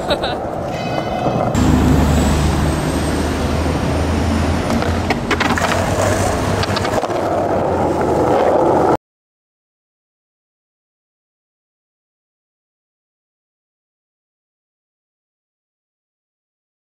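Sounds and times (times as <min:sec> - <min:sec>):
skateboard wheels rolling on asphalt: 0:00.0 - 0:09.0
wheels clicking over cracks: 0:04.7 - 0:08.9.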